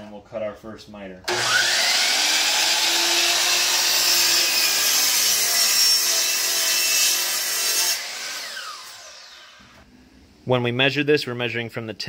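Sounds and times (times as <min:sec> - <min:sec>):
miter saw cutting wood: 0:01.3 - 0:09.8.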